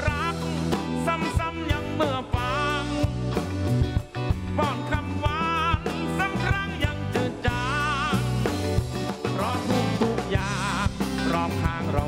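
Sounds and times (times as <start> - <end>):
man singing with vibrato: 0.0 - 3.4, 4.3 - 12.0
live rock band playing: 0.0 - 12.0.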